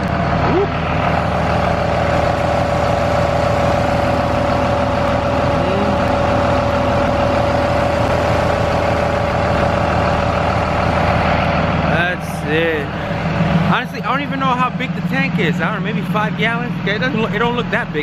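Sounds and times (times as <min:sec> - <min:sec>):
electric pump whining: 0:00.0 - 0:18.0.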